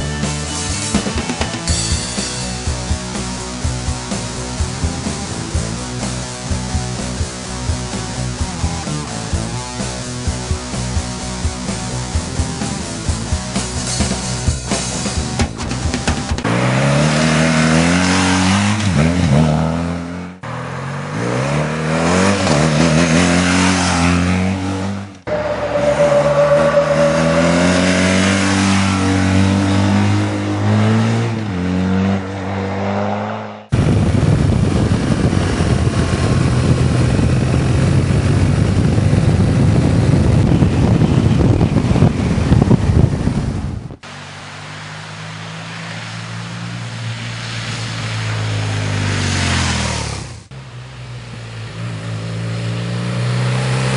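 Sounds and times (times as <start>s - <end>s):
motorcycle engine accelerating: 0.0s - 53.9s
motorcycle passing at speed: 16.0s - 53.9s.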